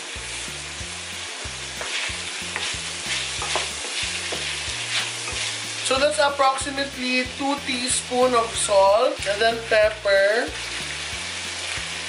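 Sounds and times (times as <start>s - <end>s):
meat sizzling in a frying pan: 0.0s - 12.0s
wooden spoon scraping a pan: 1.8s - 6.3s.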